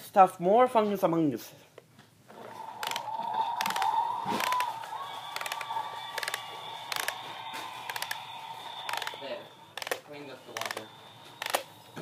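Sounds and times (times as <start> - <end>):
plastic toy clicking: 2.8 - 11.7.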